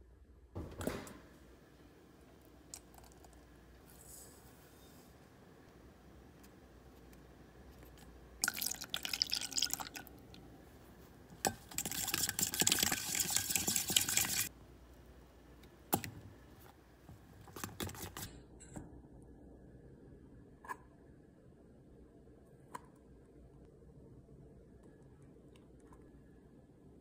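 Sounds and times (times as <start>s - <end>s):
whisk beating batter in metal bowl: 11.4s - 14.5s.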